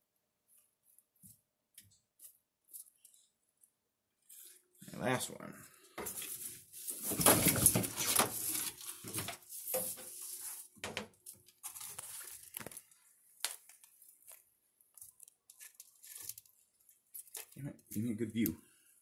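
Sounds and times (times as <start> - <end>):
rustling and scraping: 5.9 - 14.4, 15.0 - 17.6.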